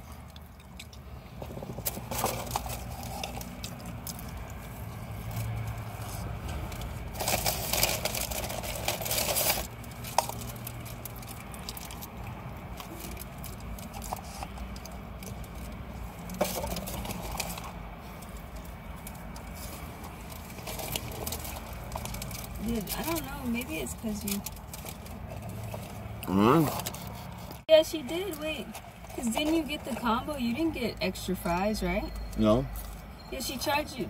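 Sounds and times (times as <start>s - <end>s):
food packaging crinkling: 1.7s - 23.2s, 23.8s - 26.1s.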